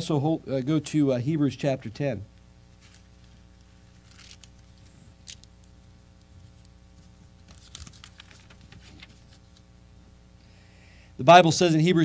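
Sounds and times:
thin pages rustling: 0:02.8 - 0:09.7.

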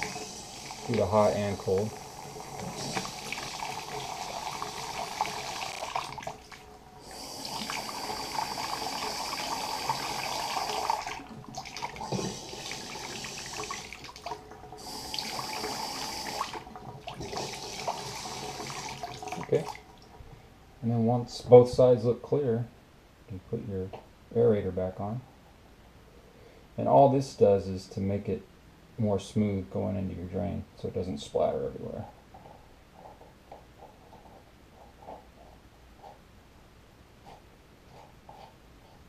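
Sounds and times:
water running from faucet into sink: 0:00.0 - 0:19.8.

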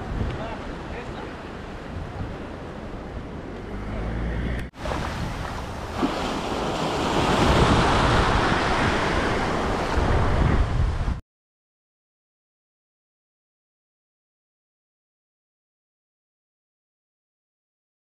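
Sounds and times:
waves breaking: 0:00.4 - 0:11.2
wind buffeting microphone: 0:04.4 - 0:11.2.

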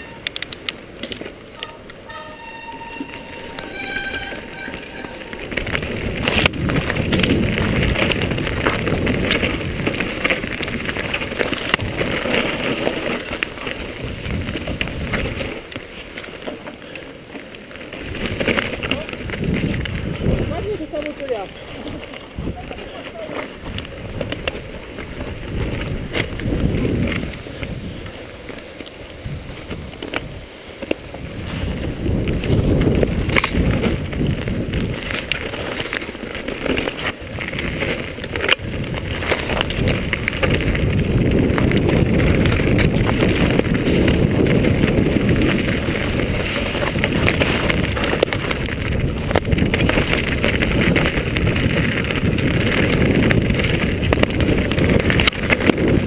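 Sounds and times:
bike rattling over rough ground: 0:00.0 - 0:56.0
wind buffeting microphone: 0:03.4 - 0:17.0, 0:17.6 - 0:56.0.

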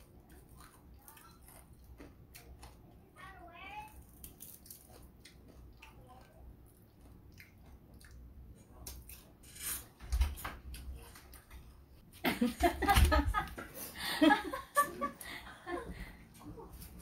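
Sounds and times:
faint crackles and mouth clicks: 0:00.0 - 0:03.1, 0:03.7 - 0:09.4
crispy food chewed: 0:00.0 - 0:03.2, 0:03.8 - 0:09.5.

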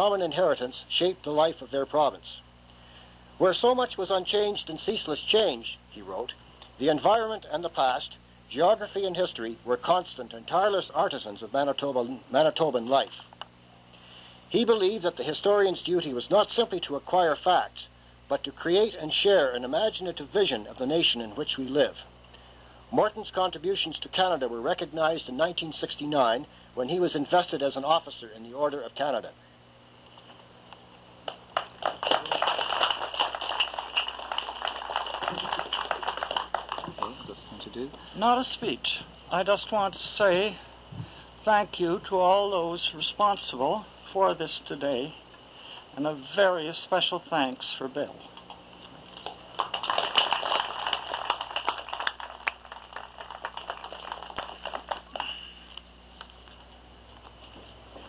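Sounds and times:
small crowd clapping: 0:31.2 - 0:37.7, 0:49.2 - 0:55.5
audience applauding: 0:31.3 - 0:37.4, 0:49.2 - 0:55.4.

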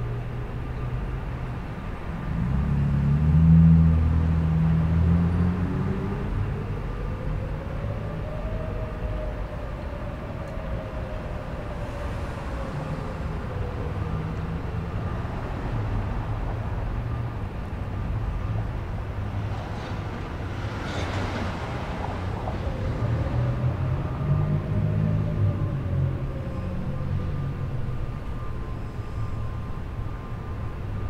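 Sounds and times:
distant sirens wailing: 0:00.0 - 0:31.0.

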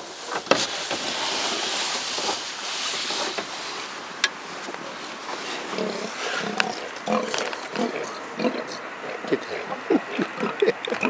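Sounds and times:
steady hiss: 0:00.0 - 0:11.0
sea lion grunting: 0:05.6 - 0:11.0.

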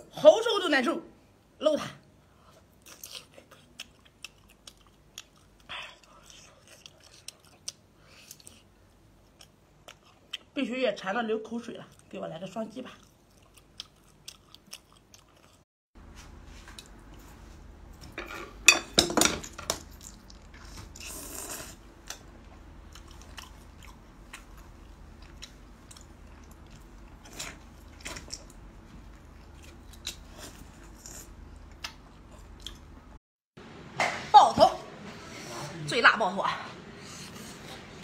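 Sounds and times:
person chewing wetly: 0:02.8 - 0:10.5, 0:12.9 - 0:15.6, 0:22.8 - 0:32.9.

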